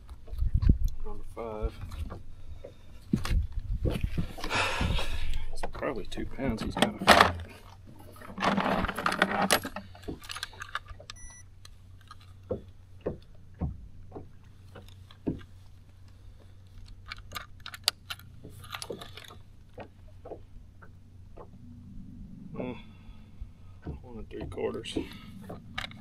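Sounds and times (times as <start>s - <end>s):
fishing gear rustling and rattling: 0.0s - 22.0s, 24.6s - 26.0s
short high beep: 11.2s - 11.4s.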